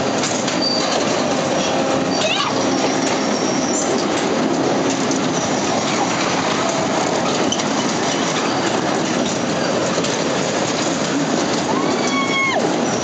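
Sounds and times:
amusement ride mechanical noise: 0.0 - 13.0.

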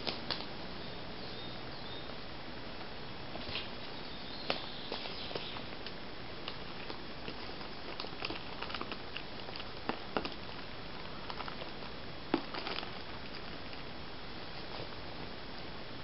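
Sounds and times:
steady hiss: 0.0 - 16.0
kit rustling over dry leaves: 3.4 - 15.2.

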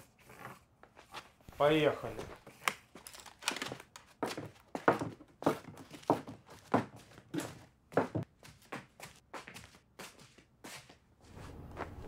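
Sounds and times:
footsteps on wooden floorboards: 4.2 - 12.0.

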